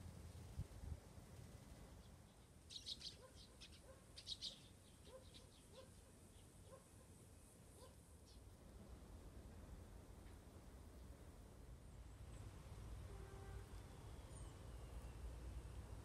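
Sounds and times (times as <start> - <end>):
small birds chirping: 1.6 - 8.6.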